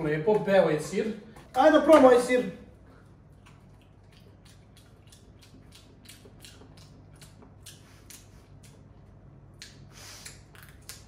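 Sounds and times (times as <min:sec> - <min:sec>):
low room hum: 0:00.0 - 0:11.0
wet chewing mouth smacks: 0:03.0 - 0:11.0.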